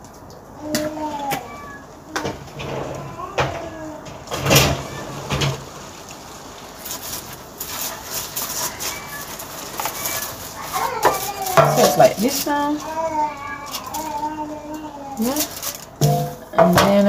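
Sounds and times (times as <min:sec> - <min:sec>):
paper crinkling and rustling: 0:03.2 - 0:17.0
metal baking tray knocking: 0:11.6 - 0:12.2, 0:16.0 - 0:17.0.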